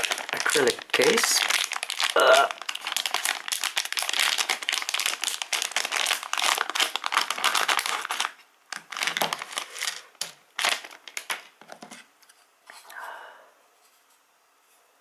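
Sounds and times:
foil pouch crinkling: 0:00.0 - 0:11.6.

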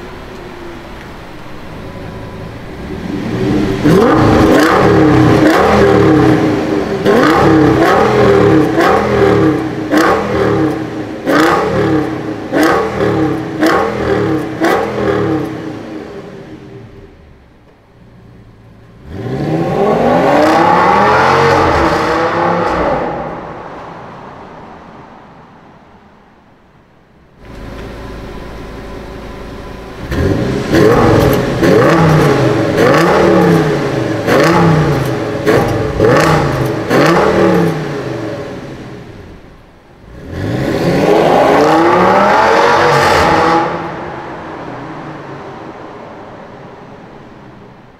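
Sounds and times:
car engine idling: 0:00.0 - 0:19.1, 0:21.3 - 0:40.2
car engine accelerating in tunnel: 0:00.0 - 0:47.9.

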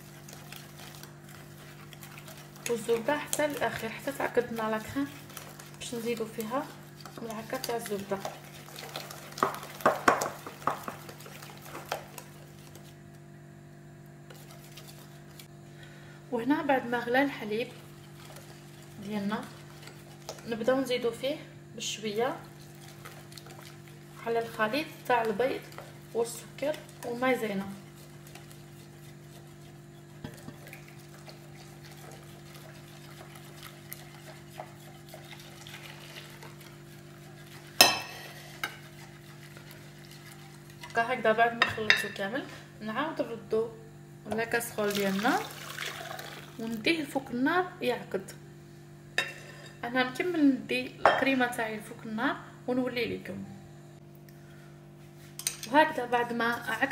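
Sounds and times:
whisk beating in glass bowl: 0:00.0 - 0:13.0, 0:16.8 - 0:21.3, 0:21.9 - 0:42.2
whisk clicking against bowl: 0:00.2 - 0:12.4
whisk clinking against glass: 0:37.8 - 0:38.8.

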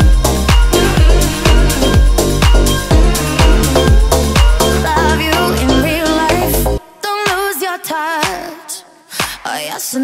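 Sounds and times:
four-on-the-floor kick drum: 0:00.0 - 0:04.9
sustained synth chords: 0:00.0 - 0:06.8
electronic dance music: 0:00.0 - 0:07.5.

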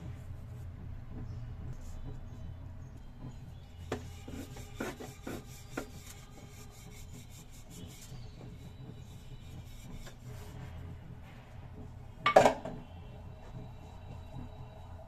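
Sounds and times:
rolling pin rubbing rasp: 0:03.4 - 0:10.6.

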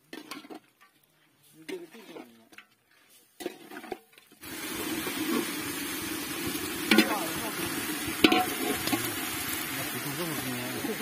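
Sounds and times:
chicken sizzling in oil: 0:04.4 - 0:11.0.

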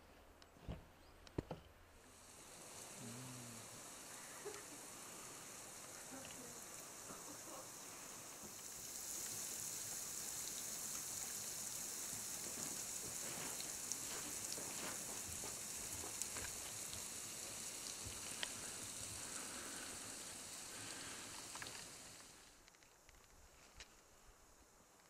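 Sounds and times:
steady high hiss: 0:00.0 - 0:25.0
water trickling and dripping: 0:03.6 - 0:22.4.

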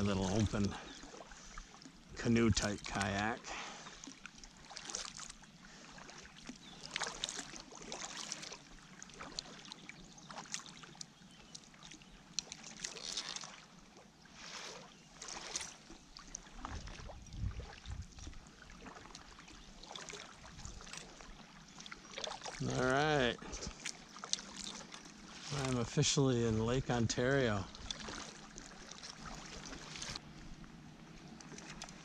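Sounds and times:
paddle splashing in water: 0:00.0 - 0:32.0.

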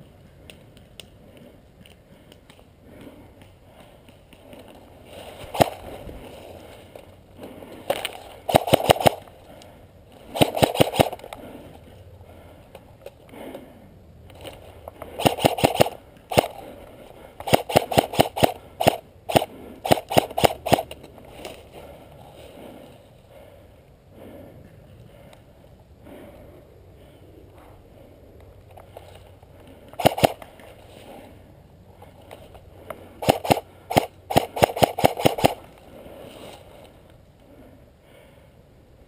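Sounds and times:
airsoft rifle shots: 0:05.5 - 0:05.8, 0:08.5 - 0:09.3, 0:10.3 - 0:11.3, 0:15.2 - 0:16.6, 0:17.4 - 0:21.0, 0:30.0 - 0:30.4, 0:33.2 - 0:35.6.

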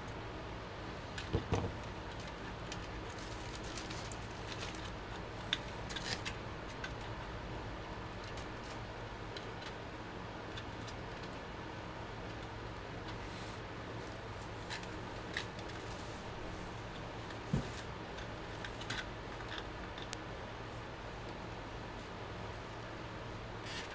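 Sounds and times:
steady low hum: 0:00.0 - 0:23.9
cables clicking and rustling: 0:01.1 - 0:13.2, 0:13.9 - 0:16.2, 0:16.9 - 0:20.3
dull knocks on metal case: 0:01.3 - 0:01.8.

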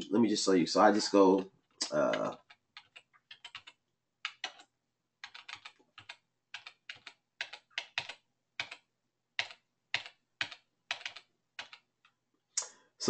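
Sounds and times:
keyboard keys clicking: 0:01.8 - 0:08.8, 0:09.4 - 0:12.2.

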